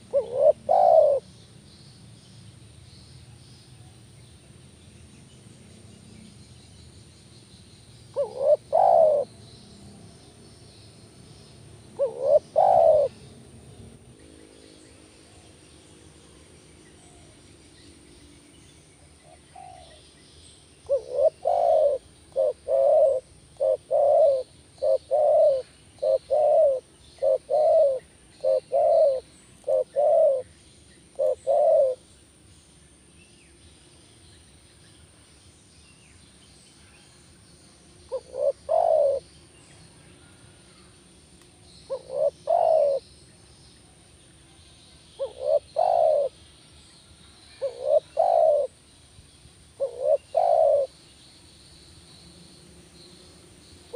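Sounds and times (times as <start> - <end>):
dove cooing: 0.0 - 1.3, 8.1 - 9.4, 11.9 - 13.2, 19.2 - 20.0, 20.8 - 30.5, 31.1 - 32.0, 38.1 - 39.4, 41.9 - 43.1, 45.2 - 46.4, 47.6 - 48.8, 49.8 - 50.9.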